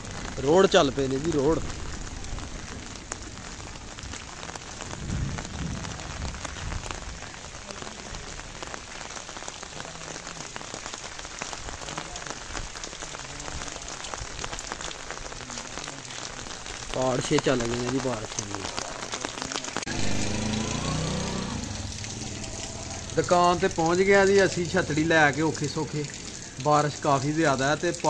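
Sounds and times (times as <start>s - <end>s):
heavy rain falling: 0.0s - 28.0s
raindrops ticking on umbrella: 0.0s - 28.0s.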